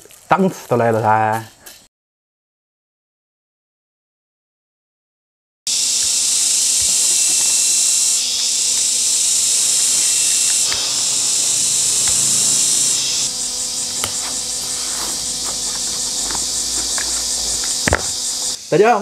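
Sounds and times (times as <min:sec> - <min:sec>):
insect chorus buzzing: 0:05.7 - 0:19.0.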